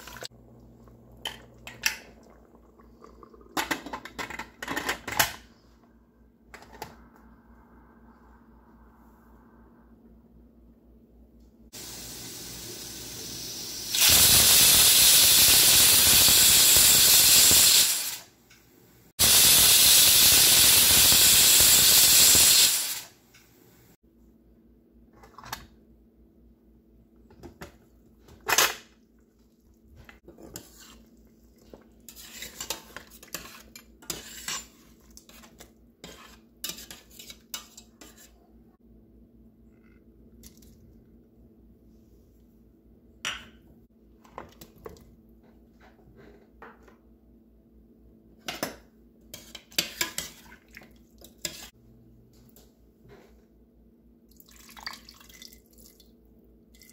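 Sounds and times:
pressure cooker hissing steam: 0:11.8 - 0:18.3, 0:19.2 - 0:23.2.

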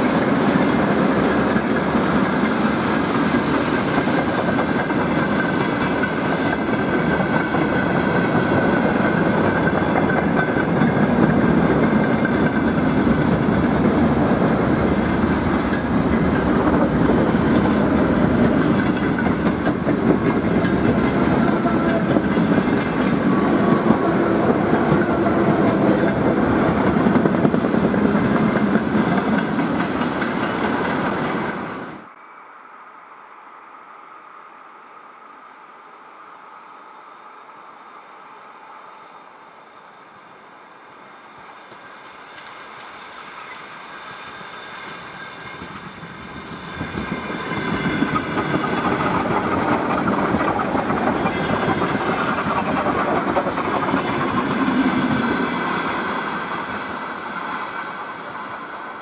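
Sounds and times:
clickety-clack over rail joints: 0:00.0 - 0:32.0, 0:41.5 - 0:58.7
train wheels rolling on rails: 0:00.0 - 0:32.3, 0:36.2 - 0:59.0.

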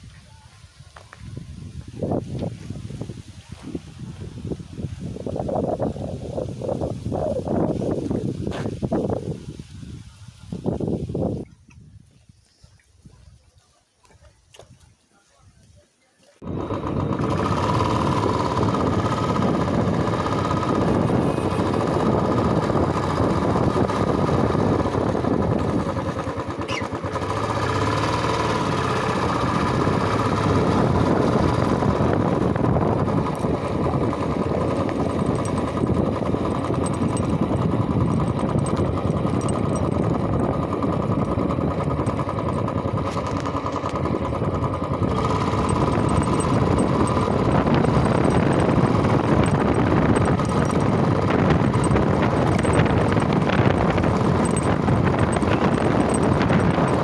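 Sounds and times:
motorcycle engine running: 0:16.4 - 0:57.0.

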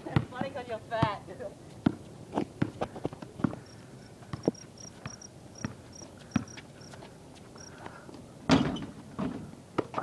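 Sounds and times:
basketball bouncing on concrete: 0:00.0 - 0:03.7, 0:04.3 - 0:06.7
crickets chirping: 0:03.6 - 0:07.0.

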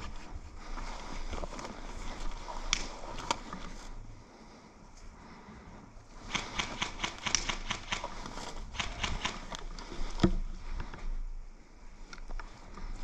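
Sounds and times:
airsoft guns firing: 0:06.2 - 0:09.6.

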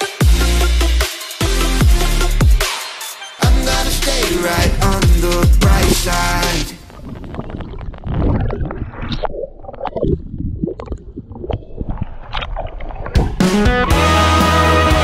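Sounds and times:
underwater gurgling and bubbling: 0:03.7 - 0:13.4.

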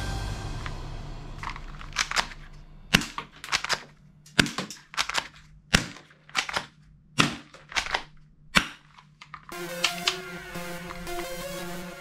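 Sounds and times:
toy pistol clicking shots: 0:01.9 - 0:08.9.

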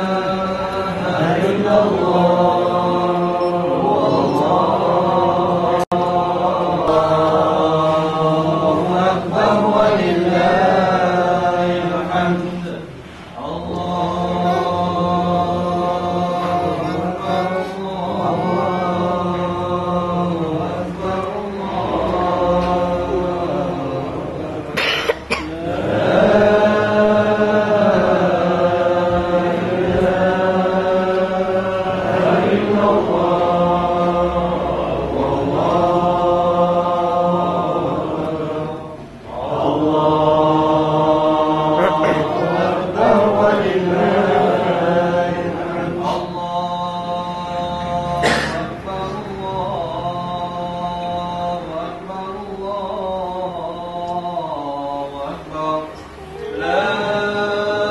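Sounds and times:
devotional chanting: 0:00.0 - 0:57.9
person coughing: 0:24.7 - 0:25.6, 0:48.2 - 0:48.8.

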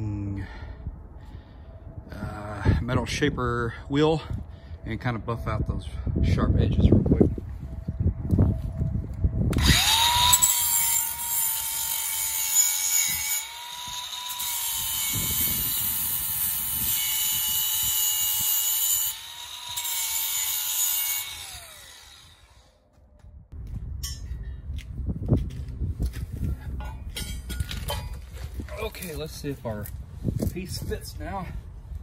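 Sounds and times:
angle grinder motor whine: 0:09.1 - 0:22.8
grinding disc on steel: 0:09.6 - 0:22.6.

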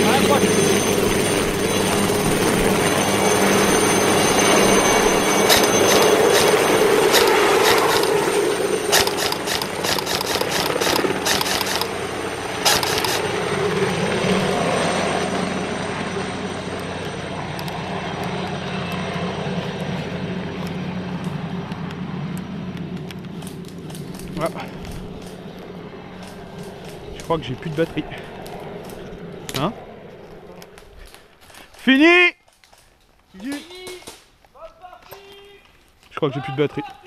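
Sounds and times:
airsoft rifle shots: 0:05.5 - 0:08.3, 0:08.9 - 0:12.0, 0:12.6 - 0:13.3
rumbling background noise: 0:17.2 - 0:31.6.

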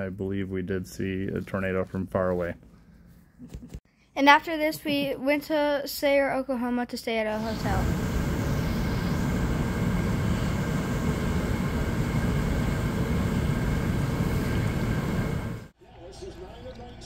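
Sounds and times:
hot tub jets churning water: 0:07.4 - 0:15.7.

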